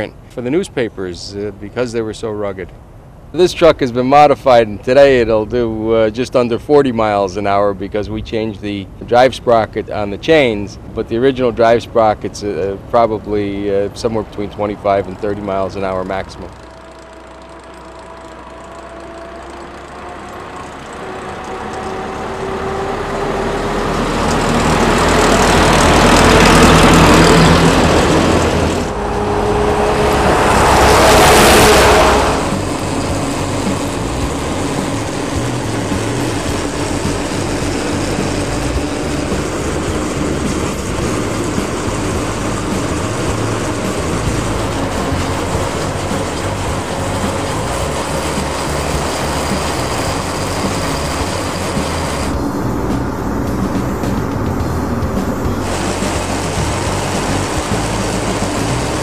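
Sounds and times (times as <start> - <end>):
road and wind noise: 0.0 - 59.0
truck engine passing: 0.0 - 59.0.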